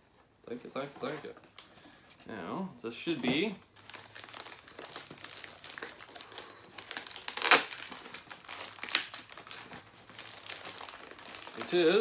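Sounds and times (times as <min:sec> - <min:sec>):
plastic wrapping crinkling: 0:03.1 - 0:12.0.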